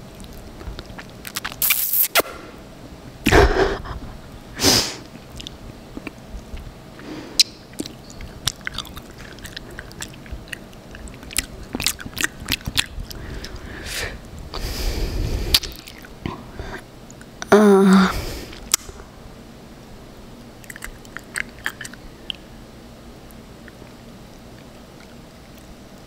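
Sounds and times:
wet mouth smacks and clicks: 0:00.2 - 0:02.2, 0:05.3 - 0:06.2, 0:07.4 - 0:13.0, 0:20.6 - 0:22.4.

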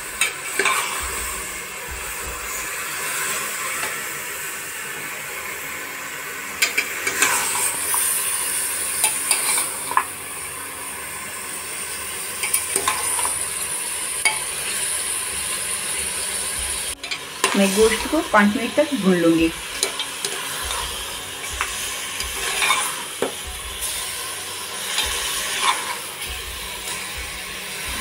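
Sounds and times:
meat sizzling in hot fat: 0:00.0 - 0:28.0
spoon scraping metal pot: 0:22.2 - 0:23.0.

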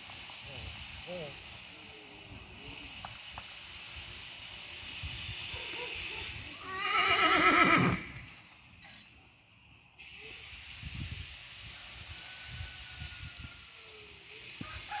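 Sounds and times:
horse whinnying: 0:06.5 - 0:08.3.

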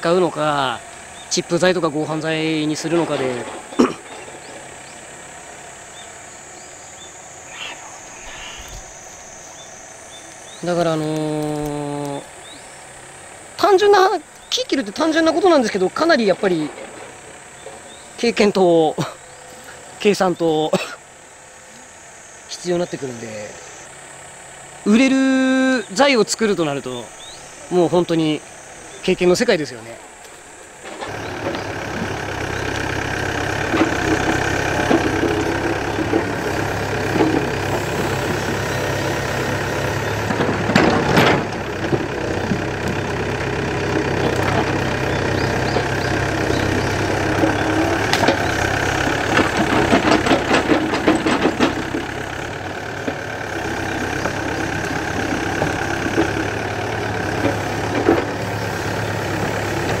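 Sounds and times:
diesel engine running under load: 0:00.0 - 1:00.0
roots and wood cracking: 0:10.3 - 0:12.4.

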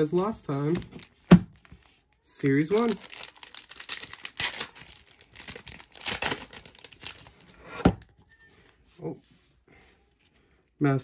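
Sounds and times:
foil wrapper crinkling and tearing: 0:01.0 - 0:07.6.

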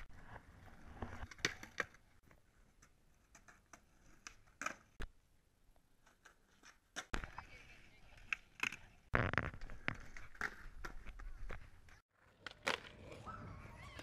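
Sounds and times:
skateboard rolling on pavement: 0:00.0 - 0:05.0, 0:06.0 - 0:14.0
skateboard clacking on ground: 0:01.0 - 0:05.0, 0:06.0 - 0:13.2.

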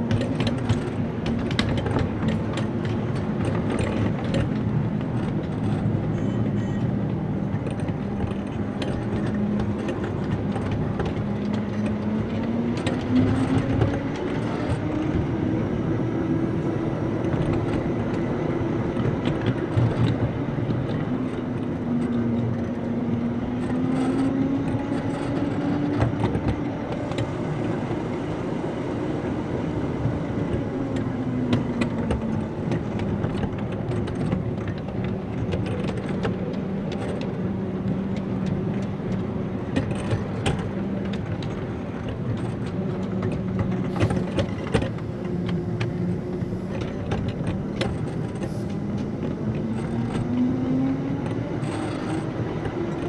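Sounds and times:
wheels clicking over rail joints: 0:00.0 - 0:53.0.

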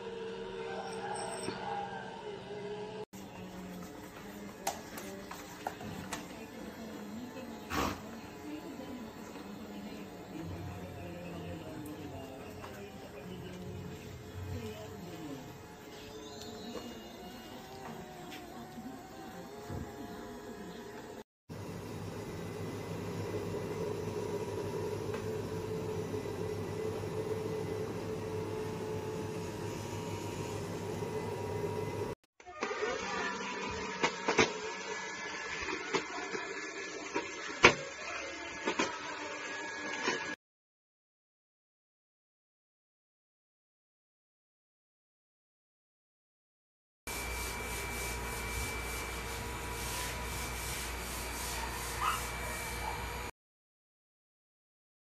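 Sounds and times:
robot vacuum motor humming: 0:03.8 - 0:40.4
robot vacuum motor whirring: 0:22.8 - 0:40.4
brushes sweeping tiled floor: 0:47.1 - 0:52.9.

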